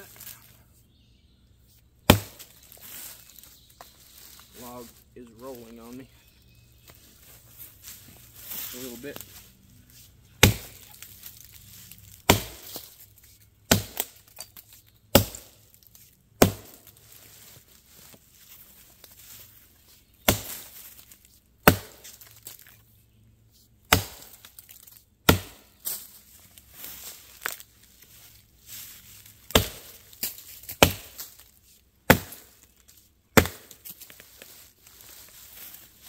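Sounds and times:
axe chopping into log: 2.0s - 2.5s, 10.4s - 11.0s, 12.2s - 12.9s, 13.7s - 14.5s, 15.1s - 15.5s, 16.4s - 16.8s, 20.2s - 20.8s, 21.6s - 22.6s, 23.9s - 24.6s, 25.2s - 26.0s, 29.5s - 31.4s, 32.1s - 32.6s, 33.4s - 34.0s.

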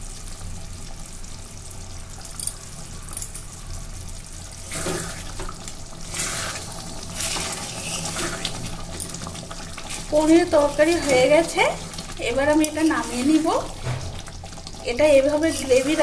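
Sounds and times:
curry simmering and bubbling: 0.0s - 16.0s
metal spatula scraping pan: 6.4s - 8.7s.

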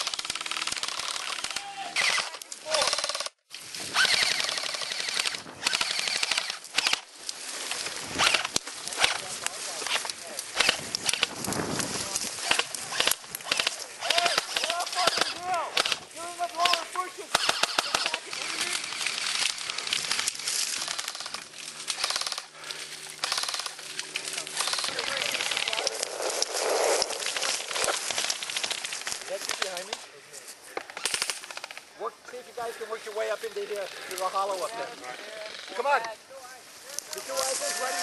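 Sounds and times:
airsoft rifles firing rapid clicks: 0.0s - 3.4s, 4.0s - 7.1s, 8.1s - 9.3s, 9.9s - 30.0s, 30.8s - 31.9s
dry grass crackling and crunching: 0.0s - 38.0s.

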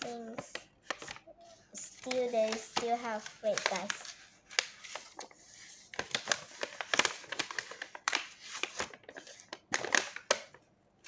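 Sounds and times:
paper cut-outs rustling: 0.0s - 7.8s.

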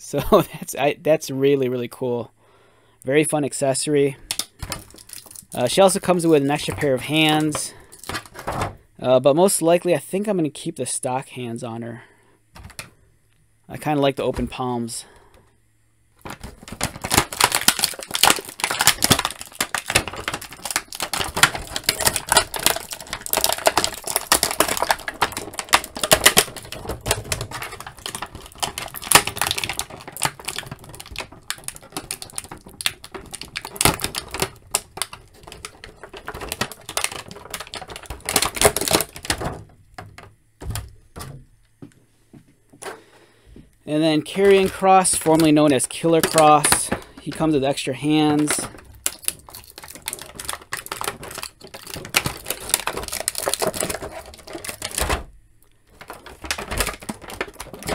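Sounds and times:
plastic packaging crackling: 4.2s - 8.8s, 12.6s - 12.9s, 16.2s - 41.4s, 43.9s - 57.9s.

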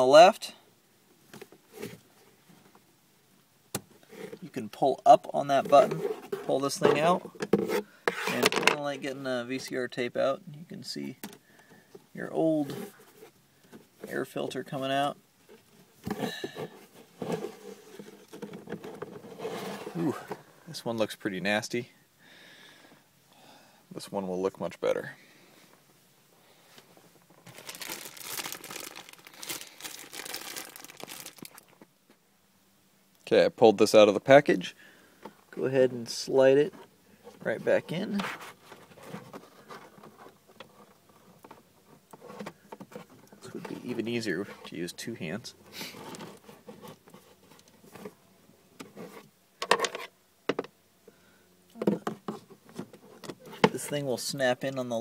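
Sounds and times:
plastic scraping and knocking: 5.7s - 8.8s, 16.0s - 20.4s
packaging rustling and crackling: 27.4s - 31.8s.

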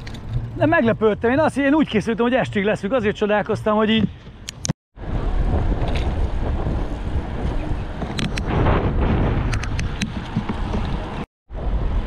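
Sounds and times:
wind rumbling on microphone: 3.9s - 12.0s.

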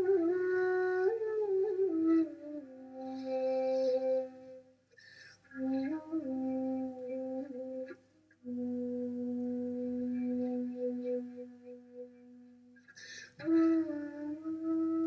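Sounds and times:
bamboo flute low notes: 0.0s - 15.0s
flute breath noise: 4.9s - 6.2s, 12.8s - 14.2s.

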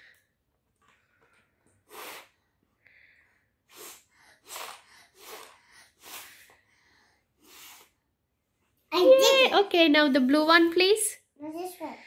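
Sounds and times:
child puffing through straw: 1.8s - 2.6s, 3.6s - 8.0s.

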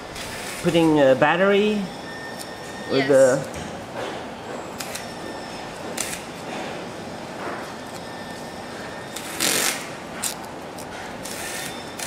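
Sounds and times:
factory floor background noise: 0.0s - 12.0s.

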